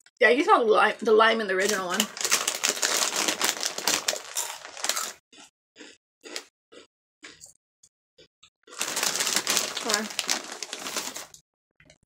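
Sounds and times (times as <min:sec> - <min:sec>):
chips crunching while chewed: 0:01.6 - 0:07.4, 0:08.7 - 0:11.4.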